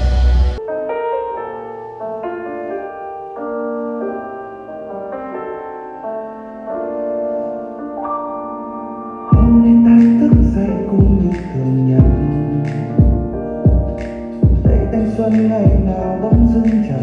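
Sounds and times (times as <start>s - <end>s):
soft piano music: 0.6s - 17.0s.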